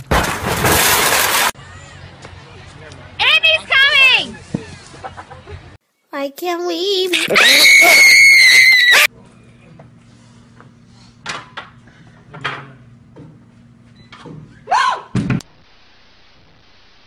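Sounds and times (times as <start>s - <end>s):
high-pitched scream: 7.2s - 9.1s.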